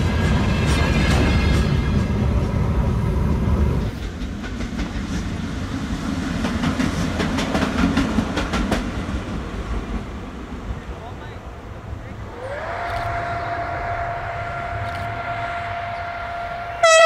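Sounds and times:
locomotive engine humming: 5.4 - 17.0
horn-like tone: 13.4 - 17.0.

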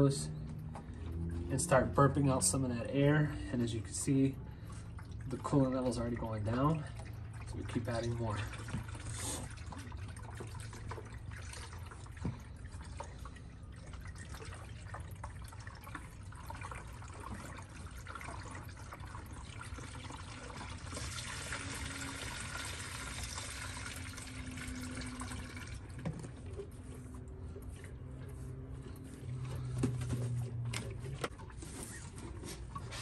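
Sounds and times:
liquid pouring into plastic funnel: 4.5 - 30.6.

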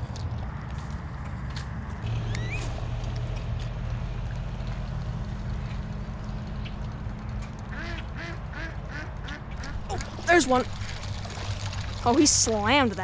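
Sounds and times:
steady low hum: 0.0 - 13.0
ducks quacking: 7.7 - 11.1.

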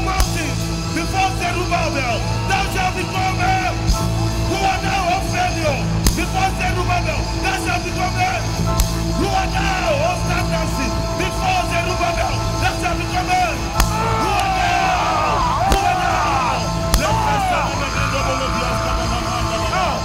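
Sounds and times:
people yelling: 0.0 - 8.5, 9.1 - 20.0
loud music with bass: 0.0 - 20.0.

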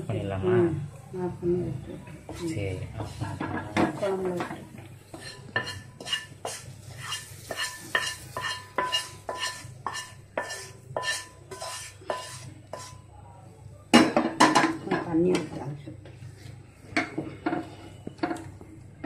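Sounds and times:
spoon scraping frying pan: 3.0 - 13.1.

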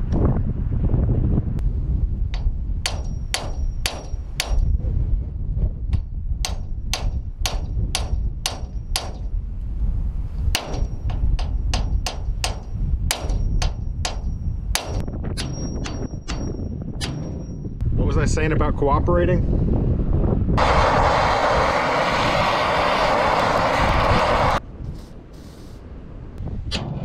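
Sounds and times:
wind rumbling on microphone: 0.0 - 27.0
hammer striking steel: 2.4 - 4.8, 6.4 - 9.4, 10.5 - 17.8.

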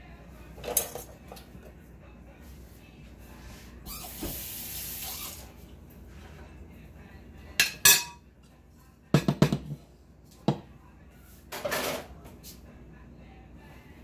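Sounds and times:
metal spoon clinking in ceramic bowl: 7.6 - 8.2.

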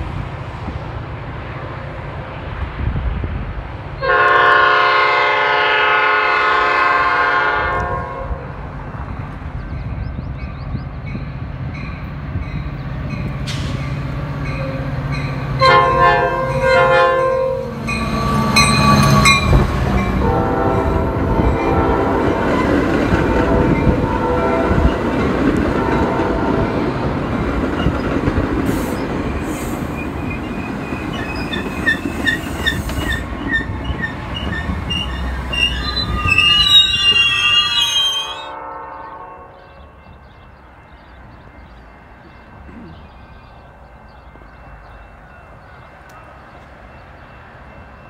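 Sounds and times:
train rumble and wheel clatter: 0.0 - 48.0
train horn blasts: 4.0 - 8.5, 15.5 - 25.0, 25.6 - 26.9, 35.8 - 40.0.

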